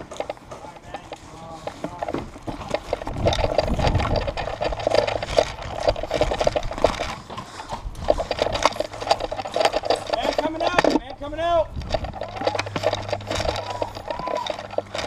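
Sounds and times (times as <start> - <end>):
gear clicking and rattling: 0.0 - 15.0.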